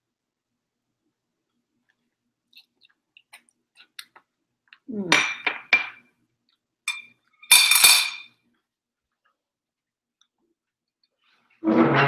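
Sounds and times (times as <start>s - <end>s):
short scrape on countertop: 11.6s - 12.0s.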